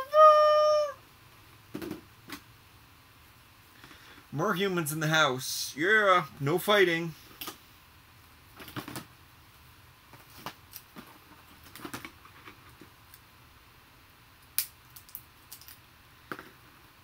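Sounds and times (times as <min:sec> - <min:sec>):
plastic clicks and rustles: 0:08.6 - 0:09.1, 0:10.1 - 0:13.2.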